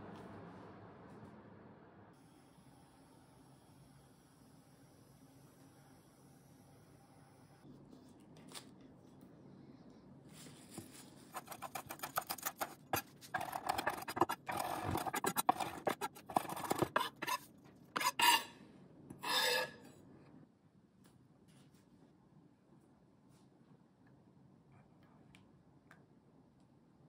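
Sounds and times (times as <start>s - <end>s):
knife scraping across board: 11.3s - 18.6s, 19.2s - 19.9s.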